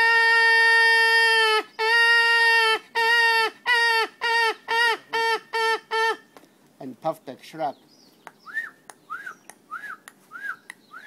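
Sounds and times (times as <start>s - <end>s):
man imitating bird calls: 7.7s - 11.0s.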